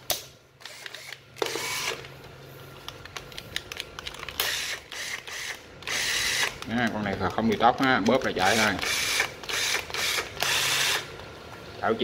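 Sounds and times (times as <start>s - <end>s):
cordless drill motor running: 0.6s - 2.1s, 4.4s - 6.6s, 8.2s - 11.1s.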